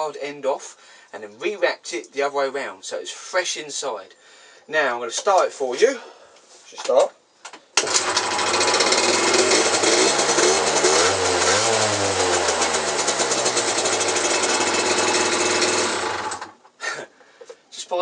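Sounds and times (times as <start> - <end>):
scooter engine revving: 7.8 - 16.6.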